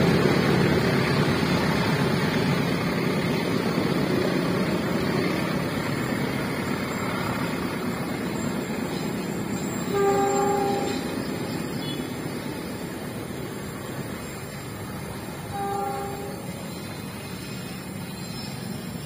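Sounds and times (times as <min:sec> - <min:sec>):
freight train rumbling on rails: 0:00.0 - 0:19.0
train horn blast: 0:09.8 - 0:12.1, 0:15.5 - 0:16.7.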